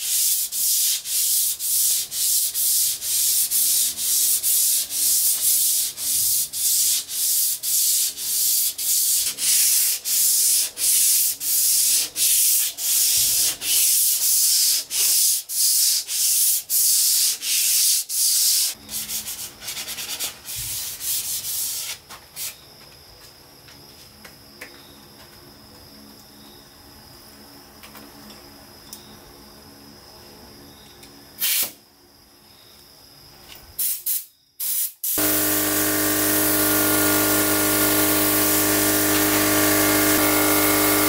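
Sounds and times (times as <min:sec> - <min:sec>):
sandpaper rubbing on wood: 0:00.0 - 0:22.5, 0:35.2 - 0:41.0.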